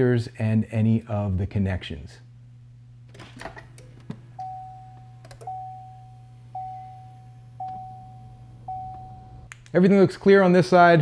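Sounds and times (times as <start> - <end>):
steady low hum: 0.0 - 11.0
car warning chime dings: 4.4 - 9.5.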